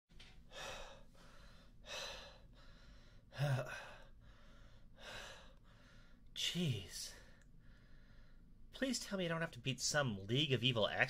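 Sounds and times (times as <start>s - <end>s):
man breathing hard: 0.4s - 6.3s, 7.2s - 8.6s.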